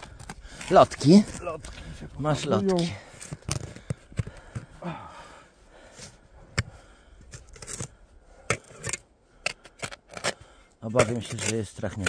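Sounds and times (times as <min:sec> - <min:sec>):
spade digging frozen soil: 0:07.3 - 0:12.0.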